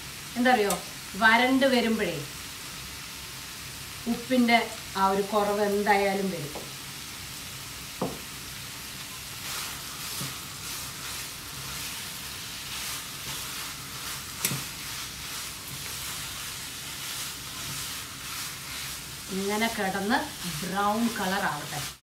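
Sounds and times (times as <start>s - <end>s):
vegetables sizzling in a frying pan: 0.0s - 22.0s
spatula knocking on pan: 8.0s - 8.3s
wooden spatula scraping a pan: 9.1s - 22.0s.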